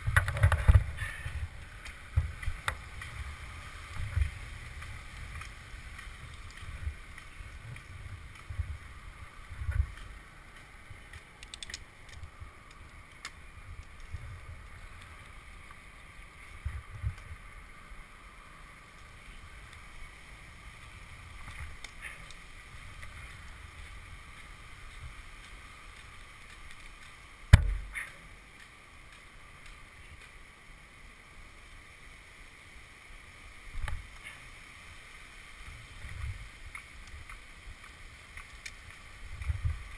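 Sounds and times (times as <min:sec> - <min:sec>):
wind rumbling on microphone: 0:00.0 - 0:30.9, 0:33.1 - 0:39.9
climbing spikes thumping on tree trunk: 0:27.0 - 0:28.3.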